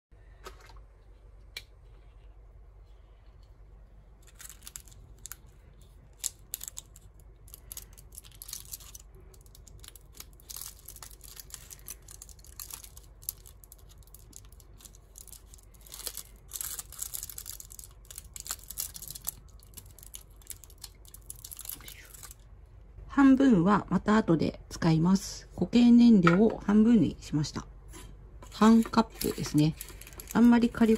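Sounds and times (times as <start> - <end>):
knife cutting plastic wrapper: 28.6 - 30.9.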